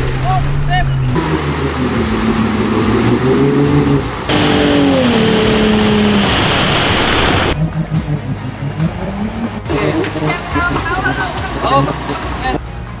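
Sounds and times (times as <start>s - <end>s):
engine revving: 0.8s - 12.6s
rushing noise: 1.2s - 7.6s.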